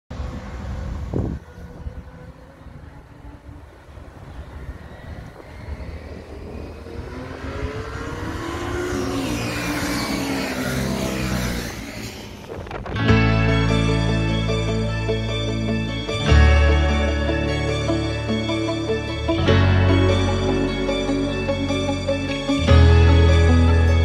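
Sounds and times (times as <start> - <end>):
distant motorcycle engines: 0.1 - 24.0
motorcycle passing close by: 0.2 - 13.2.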